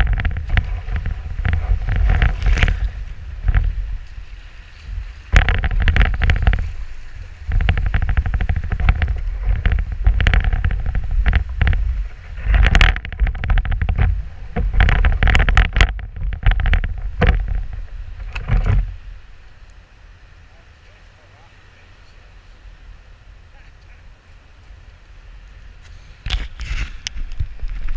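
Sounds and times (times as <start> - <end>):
hull scraping over sand and stones: 0.0 - 19.4, 25.4 - 27.9
wind buffeting microphone: 0.0 - 19.5, 22.5 - 27.9.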